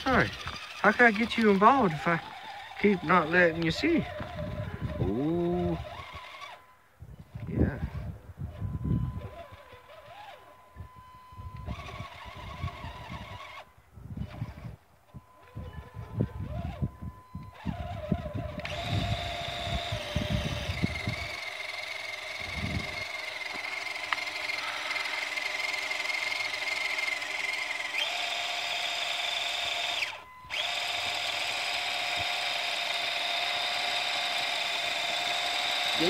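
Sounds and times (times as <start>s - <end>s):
toy car motor whining: 0.0s - 36.0s.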